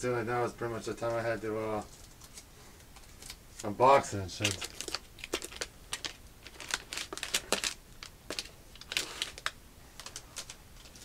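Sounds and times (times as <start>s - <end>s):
plastic wrapper crinkling: 1.8s - 11.0s.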